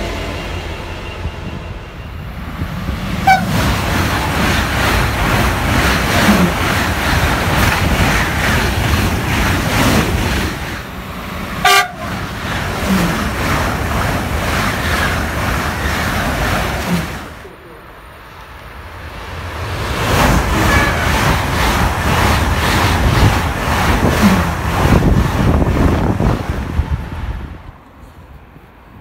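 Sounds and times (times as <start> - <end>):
high-speed train passing: 0.0 - 29.0
train horn toots: 3.2 - 3.6, 11.6 - 12.2, 20.6 - 21.2.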